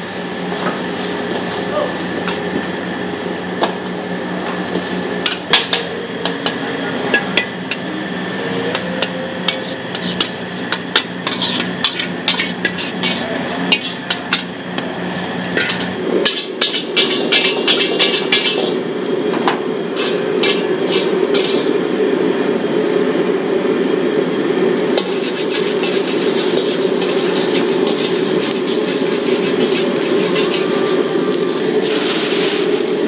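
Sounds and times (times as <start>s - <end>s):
steady hum: 0.0s - 33.0s
spatula clanking on wok: 8.7s - 14.5s, 15.6s - 18.8s, 25.0s - 31.0s.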